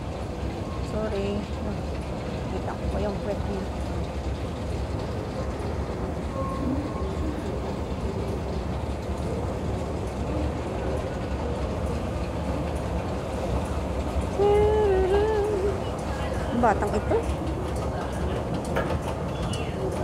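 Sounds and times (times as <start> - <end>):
escalator rumbling: 0.0 - 20.0.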